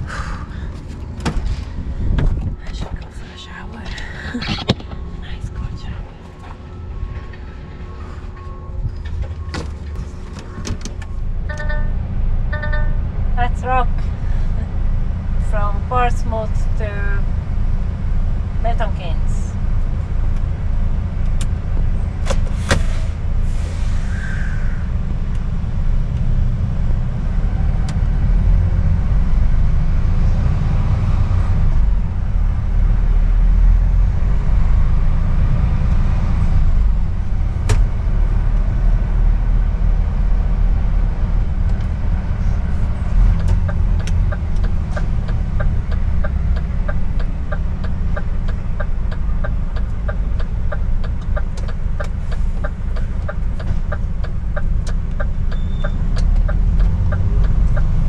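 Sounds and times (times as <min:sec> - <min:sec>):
truck diesel engine rumble: 0:00.0 - 0:58.0
turn indicator ticking: 0:43.3 - 0:58.0.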